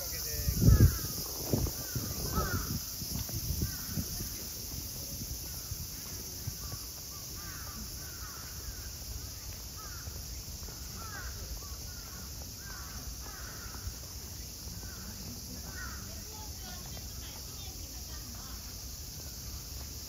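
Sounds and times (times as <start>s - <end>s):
high-pitched background hiss: 0.0s - 20.0s
crows cawing: 1.8s - 2.8s, 7.4s - 9.0s, 9.8s - 10.2s, 10.8s - 14.0s, 15.7s - 16.0s.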